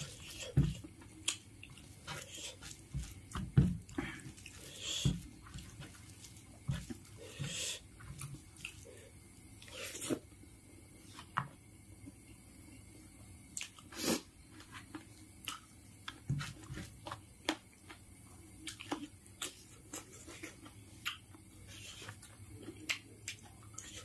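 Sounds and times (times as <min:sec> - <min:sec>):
chewing and lip-smacking: 0:01.0 - 0:02.6, 0:18.6 - 0:24.0.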